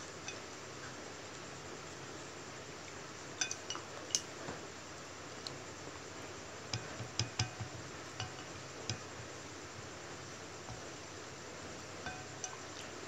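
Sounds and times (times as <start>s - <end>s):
chopsticks clinking on ceramic bowl: 3.4s - 3.9s, 12.0s - 12.7s.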